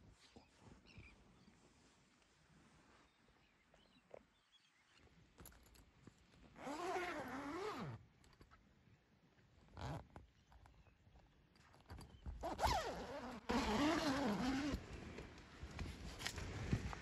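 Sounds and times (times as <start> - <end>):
tent zipper being opened: 6.5 - 8.0, 9.7 - 10.2, 12.3 - 17.0.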